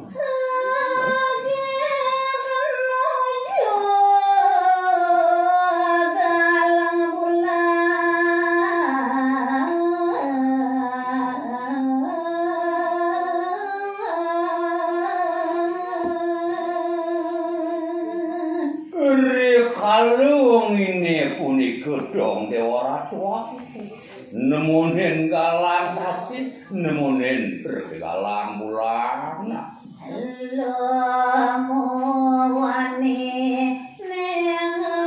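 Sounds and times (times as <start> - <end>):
woman singing unaccompanied: 0.0 - 19.0, 29.5 - 35.0.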